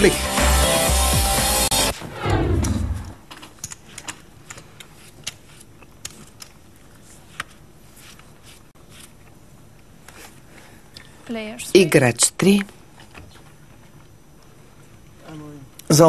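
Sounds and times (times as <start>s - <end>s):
whooshing transition sound: 1.9s - 3.2s.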